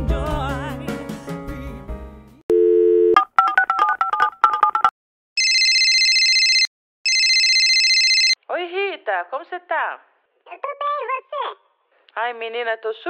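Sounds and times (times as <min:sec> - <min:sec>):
telephone dial tone: 0:02.5 - 0:04.2, 0:05.4 - 0:08.4
phone ringing: 0:02.5 - 0:08.4
keypad tones dialled: 0:05.4 - 0:08.4.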